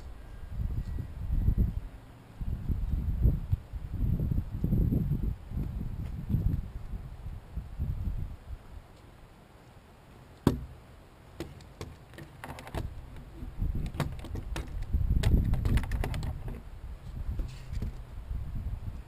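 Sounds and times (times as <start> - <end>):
gear knocking on plastic: 11.4 - 16.6.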